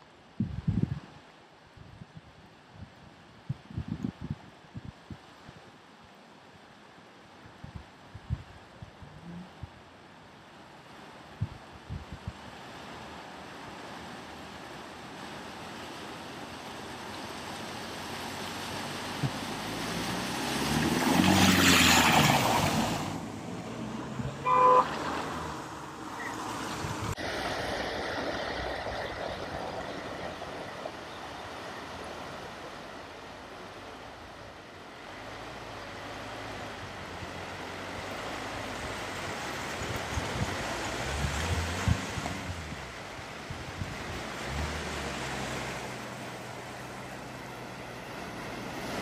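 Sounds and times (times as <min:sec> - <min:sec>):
water rushing from cars: 0:05.0 - 0:49.0
car engines: 0:12.6 - 0:49.0
car horn toot: 0:24.4 - 0:25.1.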